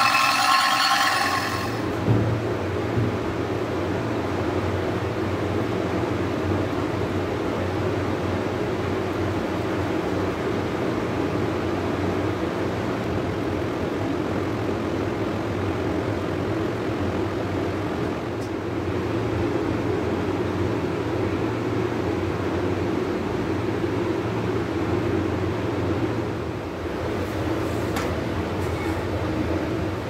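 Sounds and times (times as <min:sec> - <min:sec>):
mechanical drone: 0:00.0 - 0:02.1
low hum: 0:00.0 - 0:03.1.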